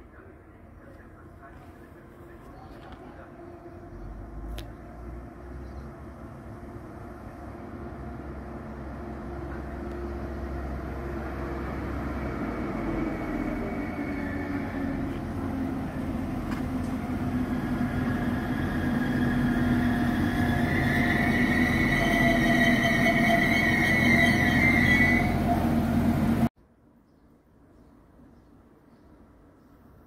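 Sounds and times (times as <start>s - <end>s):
train engine drone: 0.0s - 26.5s
high-pitched brake squeal: 13.0s - 15.0s, 18.4s - 25.8s.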